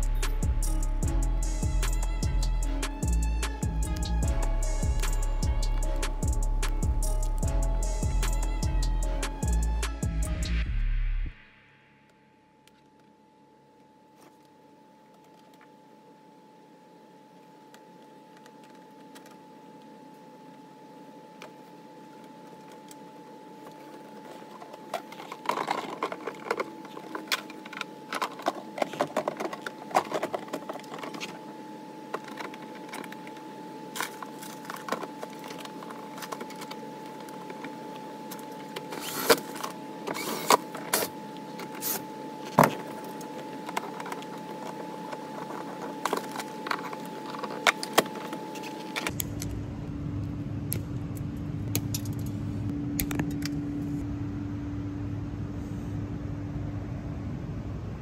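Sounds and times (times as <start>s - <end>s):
low rumble: 0.0s - 11.6s
steady high tone: 0.0s - 13.8s
low steady hum: 0.0s - 58.0s.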